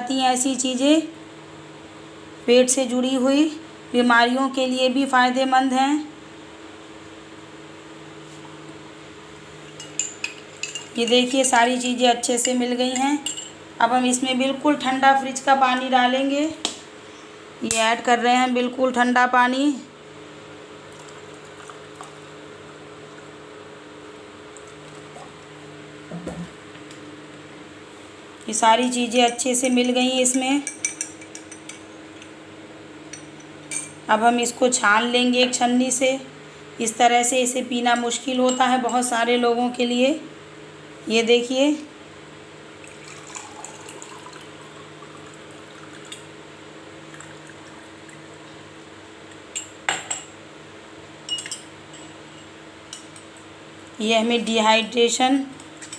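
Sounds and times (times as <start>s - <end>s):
low electrical hum: 0.0s - 55.9s
liquid trickling into a glass: 42.8s - 46.3s
glass clinks: 51.3s - 51.7s.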